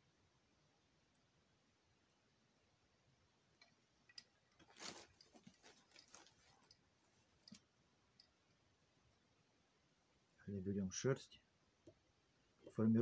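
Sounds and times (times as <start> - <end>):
hands rustling material: 4.3 - 7.7.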